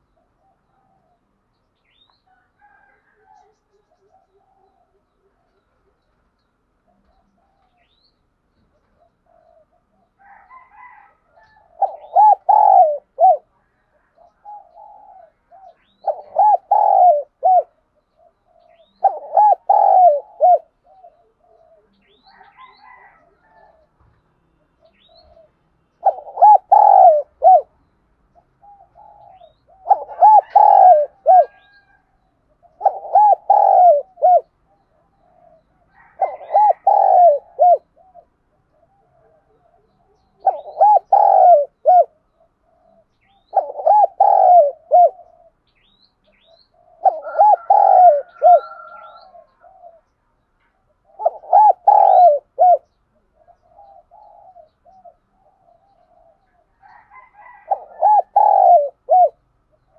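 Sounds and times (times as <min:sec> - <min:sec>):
dove cooing: 0:00.0 - 0:07.9, 0:08.6 - 0:59.9.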